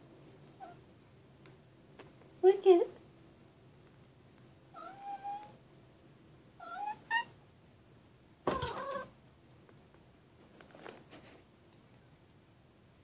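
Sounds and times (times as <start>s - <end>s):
cat meowing: 4.8s - 5.6s, 6.6s - 7.4s, 8.5s - 9.1s.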